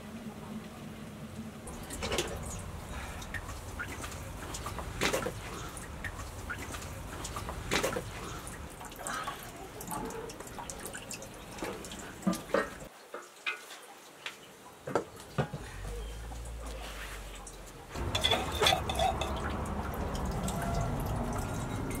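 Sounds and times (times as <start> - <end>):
low background rumble: 0.0 - 9.5
metal cookware clicking and knocking: 18.0 - 19.7.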